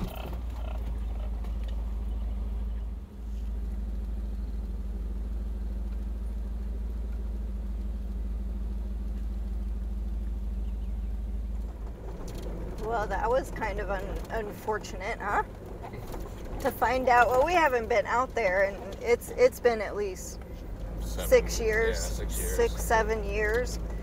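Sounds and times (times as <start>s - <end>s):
truck engine idling: 0.0s - 24.0s.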